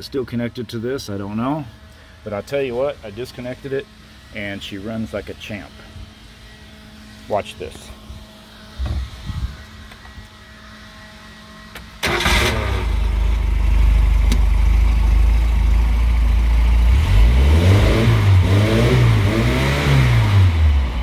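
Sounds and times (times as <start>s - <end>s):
engine revving: 10.5s - 21.0s
boat engine starting and idling: 11.8s - 16.8s.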